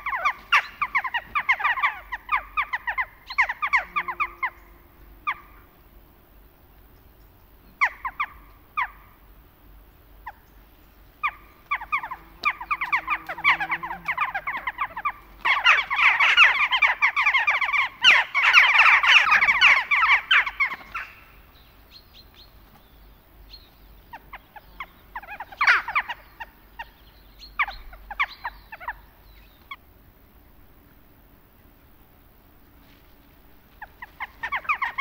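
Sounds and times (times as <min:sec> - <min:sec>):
jackdaws calling: 0:00.0 - 0:05.8, 0:07.8 - 0:09.2, 0:11.2 - 0:22.4, 0:23.5 - 0:29.8, 0:33.7 - 0:35.0.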